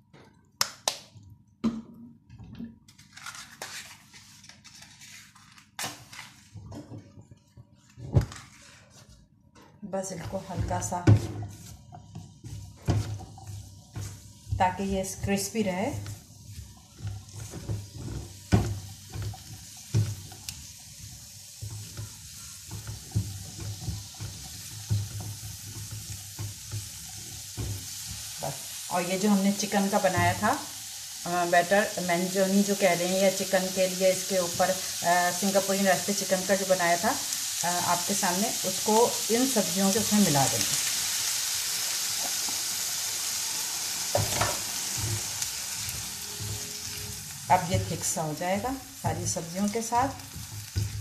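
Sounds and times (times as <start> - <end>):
vegetables sizzling in oil: 10.0 - 51.0
spatula knocking and scraping pan: 10.2 - 28.8, 29.8 - 30.5, 44.1 - 51.0.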